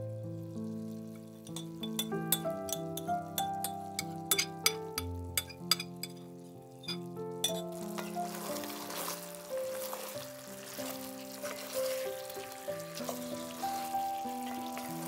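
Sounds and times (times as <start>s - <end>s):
background music: 0.0s - 15.0s
wings sizzling in a skillet: 0.4s - 15.0s
wooden spatula stirring: 6.8s - 15.0s.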